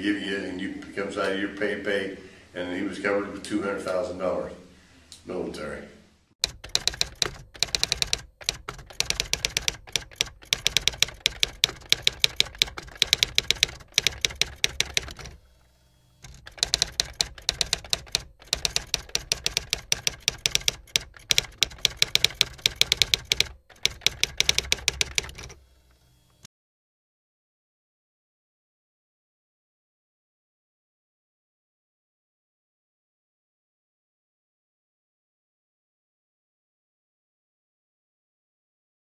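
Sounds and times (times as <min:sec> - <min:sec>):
typewriter keystrokes clattering: 0:06.4 - 0:15.4, 0:16.2 - 0:25.6.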